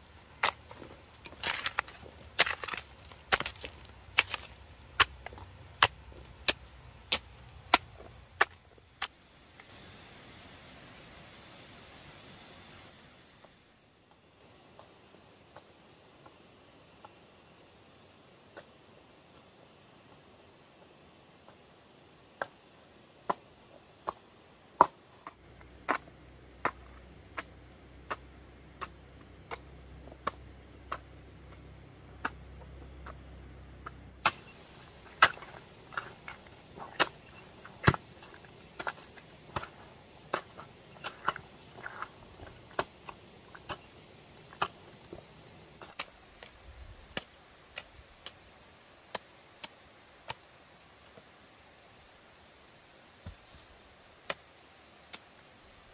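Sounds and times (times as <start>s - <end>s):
hoe chopping stony soil: 0.0s - 9.2s, 24.8s - 50.5s, 53.2s - 53.7s.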